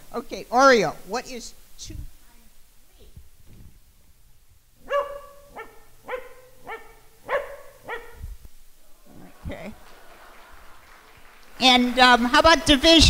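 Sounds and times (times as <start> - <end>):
dog barking: 4.8 - 8.3.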